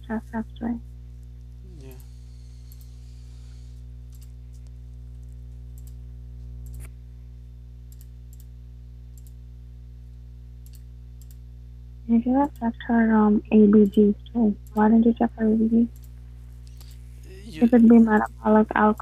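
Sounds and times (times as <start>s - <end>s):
low electrical hum: 0.0s - 19.0s
computer mouse clicks: 2.7s - 3.0s, 5.8s - 6.0s, 10.6s - 11.4s.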